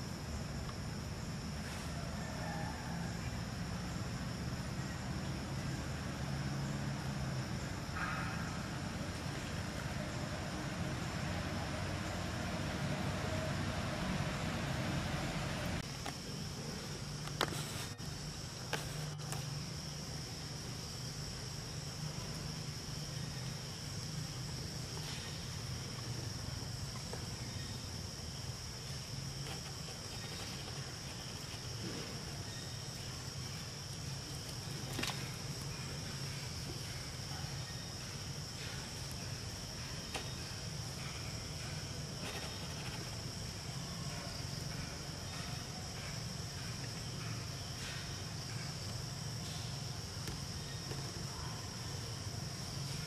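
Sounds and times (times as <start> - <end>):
insects droning: 0.0 - 53.0.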